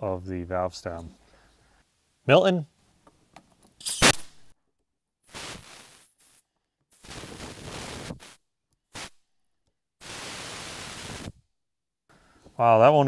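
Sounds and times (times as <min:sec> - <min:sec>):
compressed air hissing: 0:05.3 - 0:09.2, 0:10.0 - 0:11.4.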